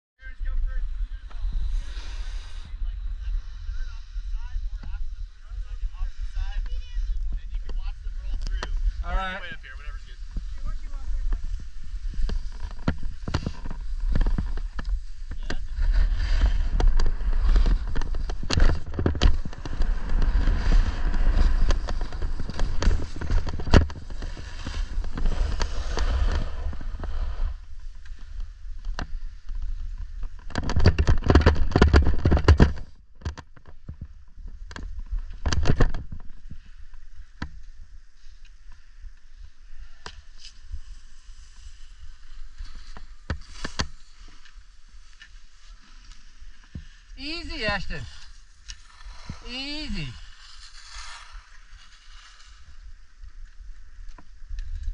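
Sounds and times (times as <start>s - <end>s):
wind on microphone: 0.4s - 27.8s
skis sliding on snow: 0.8s - 30.4s, 39.3s - 54.9s.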